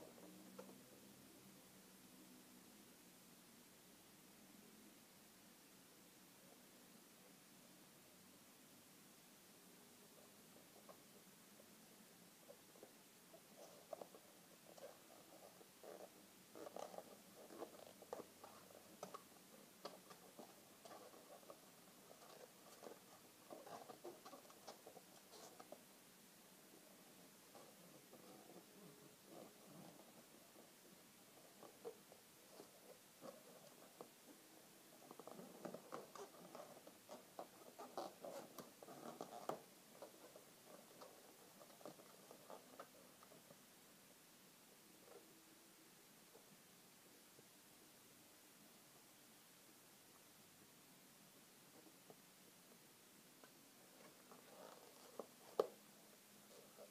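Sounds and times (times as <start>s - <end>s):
balloons squeaking and rubbing: 13.4s - 25.8s, 35.0s - 43.2s.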